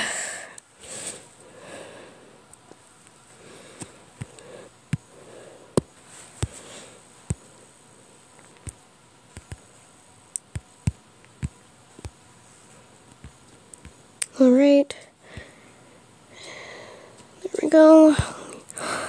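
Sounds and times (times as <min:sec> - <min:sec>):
taps on touchscreen: 0:09.4 - 0:09.6.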